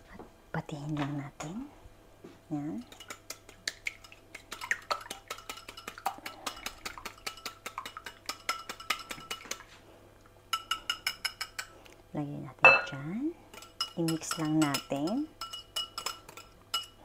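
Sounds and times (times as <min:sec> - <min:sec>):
whisk clinking against glass bowl: 0:02.9 - 0:09.6, 0:10.5 - 0:11.7, 0:12.6 - 0:17.0.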